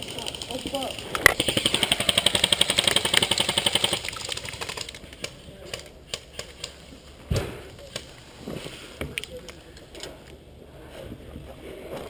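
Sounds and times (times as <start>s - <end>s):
airsoft gun firing: 1.3s - 4.0s.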